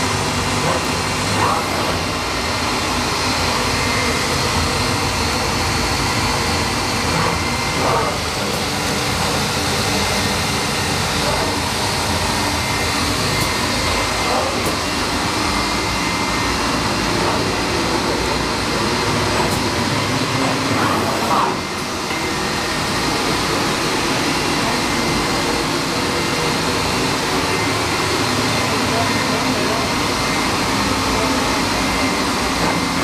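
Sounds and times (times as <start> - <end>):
woodworking machine whirring: 0.0 - 33.0.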